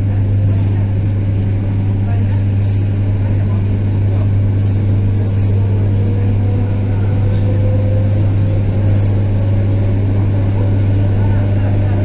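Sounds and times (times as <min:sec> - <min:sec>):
electric train humming: 0:00.0 - 0:12.0.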